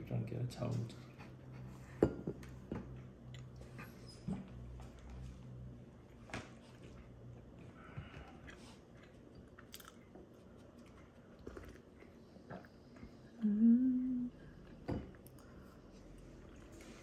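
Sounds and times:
person humming: 13.4s - 14.4s.

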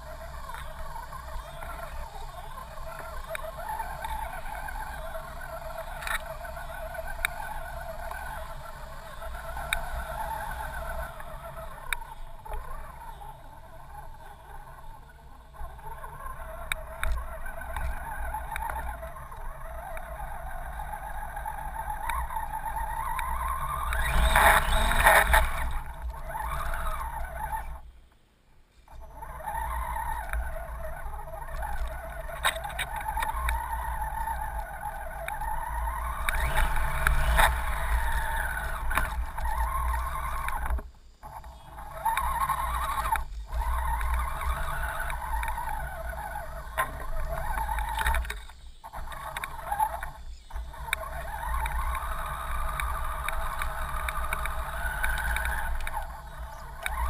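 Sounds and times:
electric motor whining: 15.5s - 27.8s, 28.9s - 57.0s.

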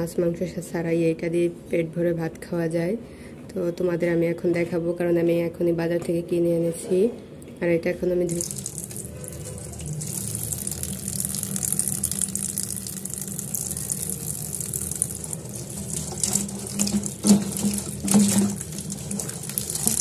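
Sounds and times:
tap water running into metal bowl: 8.3s - 20.0s
water splashing: 8.3s - 20.0s.

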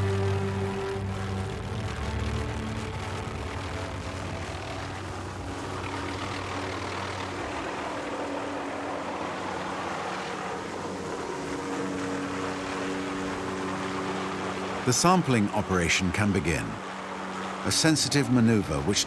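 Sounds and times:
helicopter hovering: 0.0s - 19.0s.

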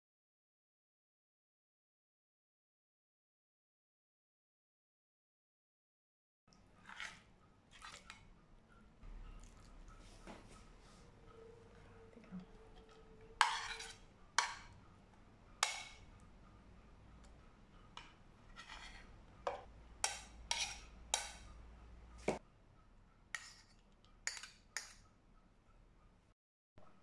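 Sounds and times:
cutlery clinking against plates: 12.0s - 14.8s, 15.6s - 16.1s, 17.9s - 21.5s, 23.4s - 25.0s.

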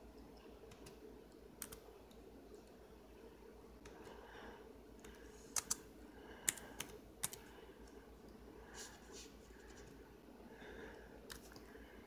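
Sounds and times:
faint steady hum: 0.0s - 12.0s
computer keyboard keystrokes: 0.7s - 1.0s, 1.6s - 2.2s, 5.0s - 5.8s, 6.4s - 7.5s.

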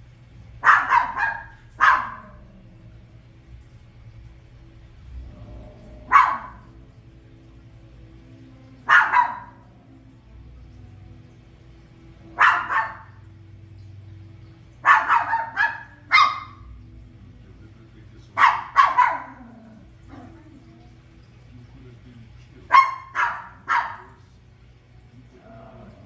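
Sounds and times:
small dog barking: 0.6s - 2.6s, 6.0s - 6.8s, 8.8s - 9.7s, 12.3s - 13.3s, 14.8s - 16.7s, 18.4s - 20.4s, 22.7s - 24.2s.

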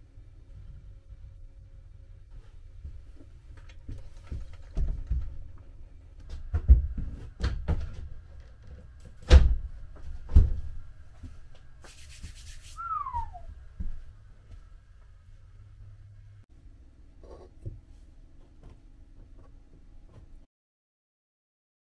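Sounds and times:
short falling squeak: 12.8s - 13.5s.

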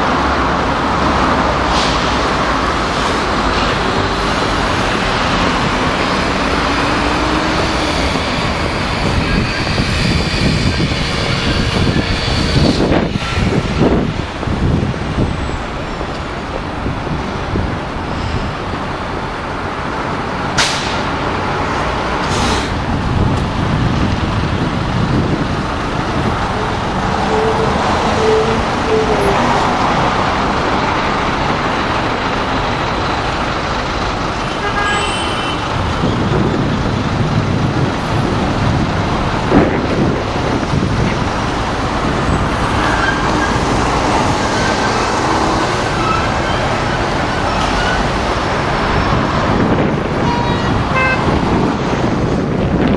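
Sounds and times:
street traffic: 0.0s - 52.9s
car horn toots: 50.2s - 51.4s.

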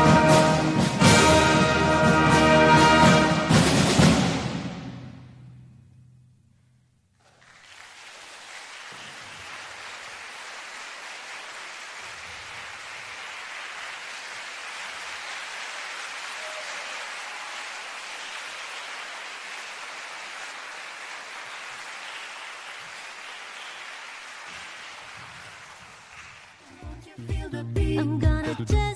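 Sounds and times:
brass and concert band chord: 0.0s - 5.5s
audience applause: 7.2s - 27.0s.

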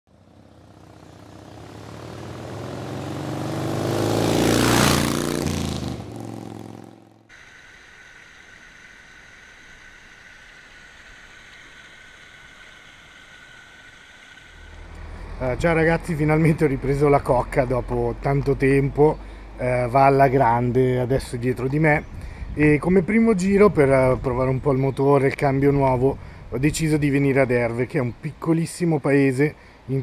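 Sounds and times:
vehicle engine passing by: 0.1s - 7.3s, 14.5s - 20.0s
stream water flowing: 7.3s - 18.4s.

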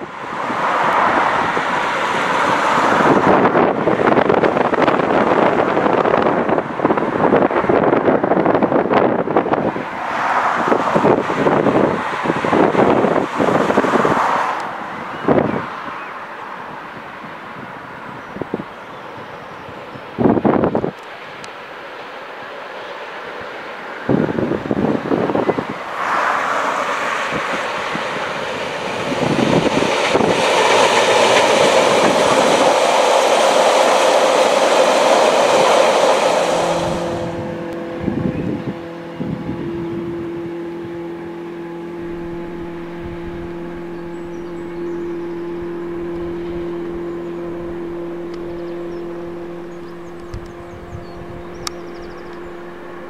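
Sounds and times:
wind buffeting microphone: 0.0s - 21.0s, 24.1s - 41.2s, 41.8s - 53.0s
low hum: 25.5s - 53.0s
freight wagons rolling on rails: 25.7s - 37.0s.

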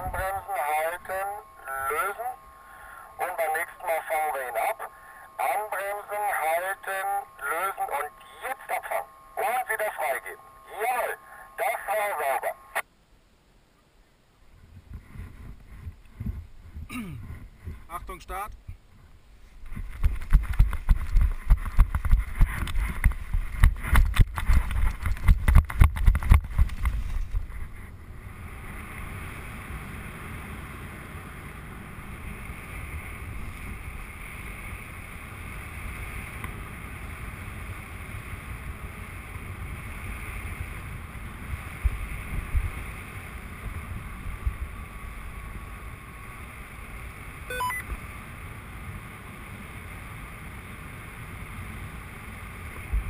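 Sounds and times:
running footsteps: 19.6s - 27.4s
short electronic beep: 47.5s - 47.9s.

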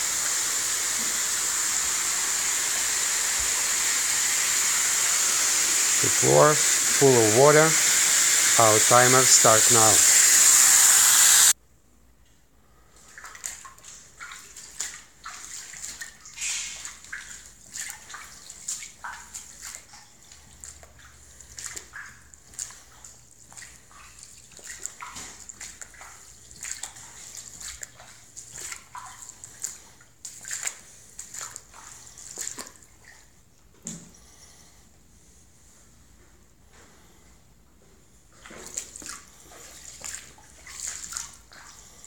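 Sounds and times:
footsteps splashing through water: 13.0s - 33.3s, 38.3s - 42.0s.

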